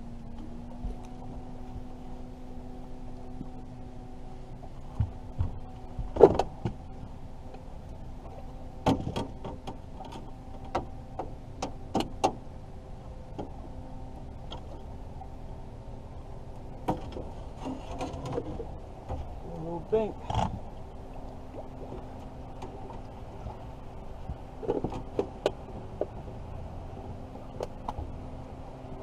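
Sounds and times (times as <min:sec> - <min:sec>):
steady low hum: 0:00.0 - 0:29.0
knocks and clatters on boat: 0:04.5 - 0:12.5, 0:13.3 - 0:15.4, 0:16.6 - 0:28.3.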